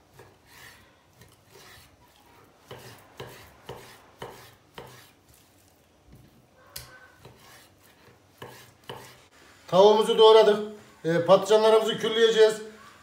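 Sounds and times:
knife slicing raw meat: 0.1 - 5.7.

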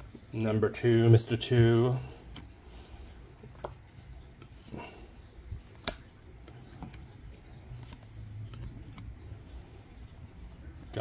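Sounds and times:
low steady hum: 0.0 - 11.0
trading cards clicking and tapping: 3.4 - 4.7, 5.6 - 9.4.

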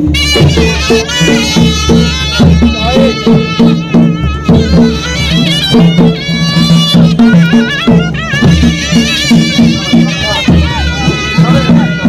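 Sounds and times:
reedy wind instrument melody: 0.0 - 12.0.

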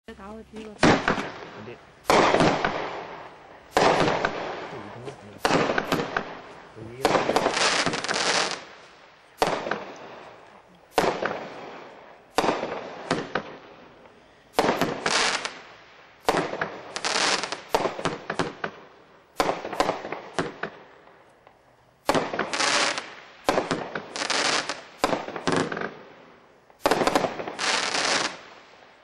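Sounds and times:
firework reports: 0.1 - 20.7
firework crackle: 0.7 - 29.0.

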